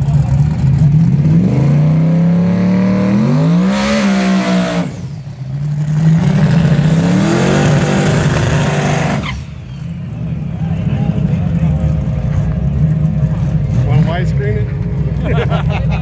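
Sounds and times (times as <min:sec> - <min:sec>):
car engines revving hard: 0:00.0 - 0:16.0
spinning tires hissing: 0:04.2 - 0:10.1.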